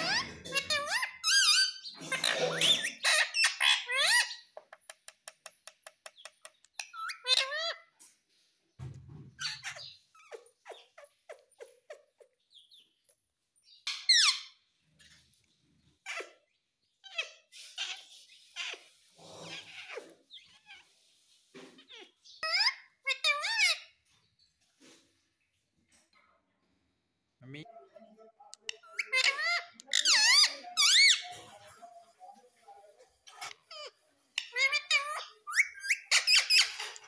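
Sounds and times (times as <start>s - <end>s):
parakeet chattering and calling: 0.0s - 7.9s, 9.4s - 12.9s, 13.7s - 15.2s, 16.0s - 24.0s, 28.5s - 37.0s.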